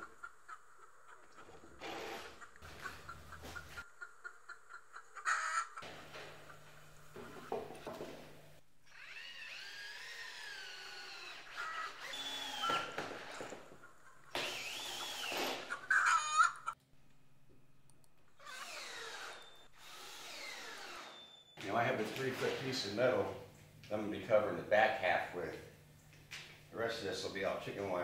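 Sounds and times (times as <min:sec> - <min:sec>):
cordless drill motor: 0:01.8 - 0:02.8, 0:08.8 - 0:13.7, 0:14.3 - 0:15.7, 0:18.4 - 0:22.7.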